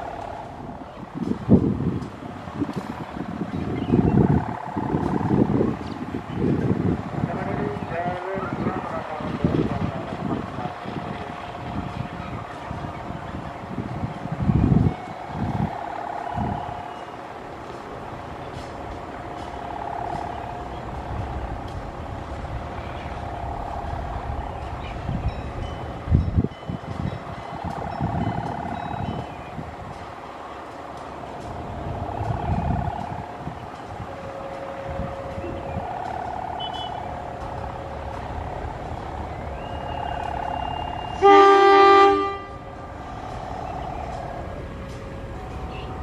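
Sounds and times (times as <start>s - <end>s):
high steady whine: 0.0s - 46.0s
locomotive engine idling: 0.0s - 46.0s
locomotive horn blast: 31.9s - 38.4s, 39.2s - 46.0s.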